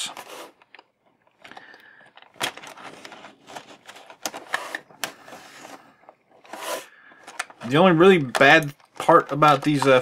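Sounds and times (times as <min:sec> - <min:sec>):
sharp plastic clicks: 0:07.1 - 0:10.0.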